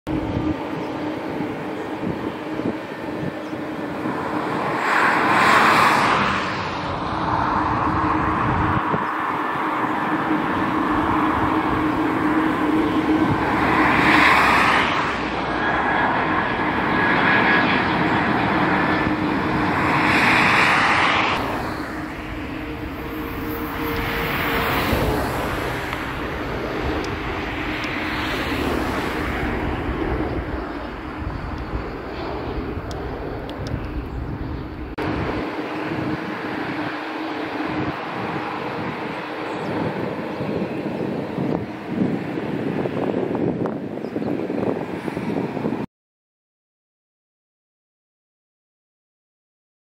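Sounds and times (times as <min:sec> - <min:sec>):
jet engines drone: 0:00.1 - 0:45.9.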